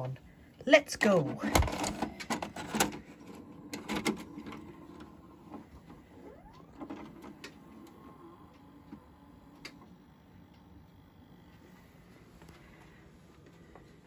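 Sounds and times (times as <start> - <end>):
motor whirring: 3.4 - 11.7.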